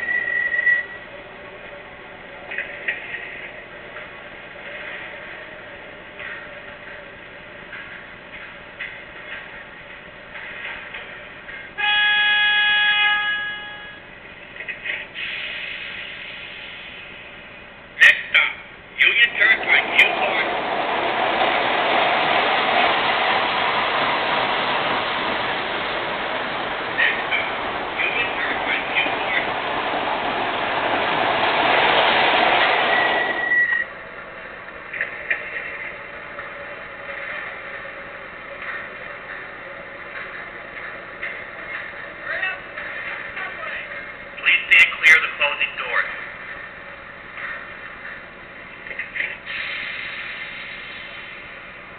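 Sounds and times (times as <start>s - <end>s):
high brake squeal: 0.0s - 1.1s, 33.2s - 34.0s
model train running on track: 0.0s - 51.9s
toy train horn blast: 11.8s - 14.0s
steady rushing noise: 19.2s - 33.2s.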